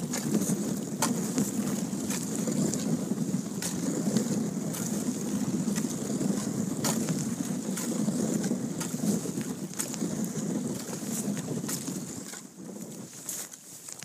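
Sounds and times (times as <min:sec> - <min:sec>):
paddle splashing water: 0:00.0 - 0:14.0
wind rumbling on microphone: 0:00.0 - 0:14.0.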